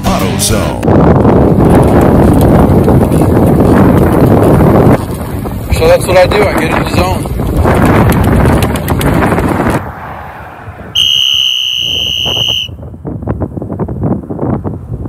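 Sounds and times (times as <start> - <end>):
wind buffeting microphone: 0.0 - 15.0
high-pitched whistle: 11.0 - 12.8.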